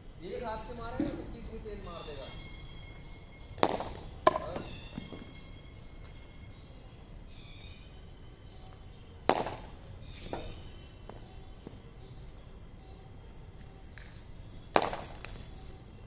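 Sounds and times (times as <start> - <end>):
steady high-pitched tone: 0.0 - 16.0
cricket ball cracks: 3.5 - 5.4, 9.2 - 11.8, 13.6 - 15.8.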